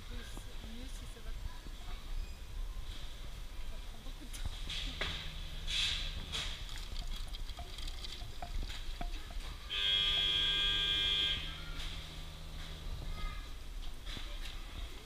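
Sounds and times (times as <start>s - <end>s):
vending machine pump whining: 4.6s - 13.3s.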